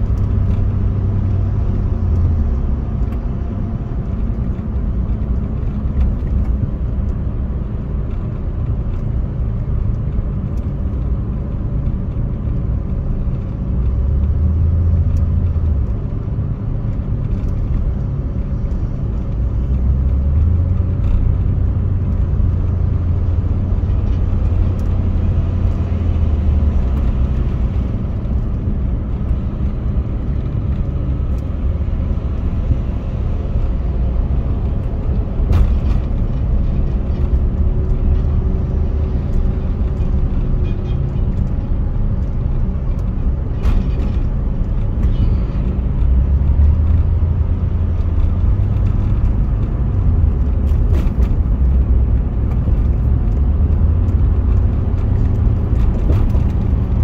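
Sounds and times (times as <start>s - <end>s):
car interior road rumble: 0.0s - 57.0s.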